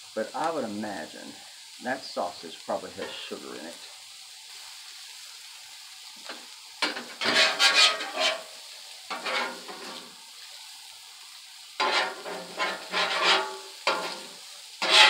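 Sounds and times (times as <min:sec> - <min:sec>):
sausage sizzling on a griddle: 0:00.0 - 0:15.0
metal spatula scraping: 0:06.8 - 0:10.1, 0:11.8 - 0:15.0.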